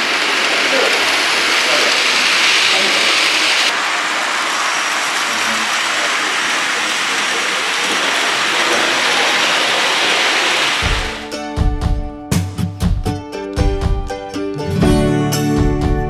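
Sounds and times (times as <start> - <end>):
model train wheels rolling on rail: 0.0 - 11.2
guitar music: 10.8 - 16.0.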